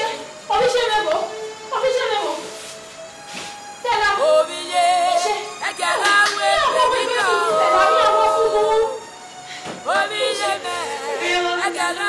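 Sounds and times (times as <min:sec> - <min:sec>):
women singing without instruments: 0:03.9 - 0:12.0.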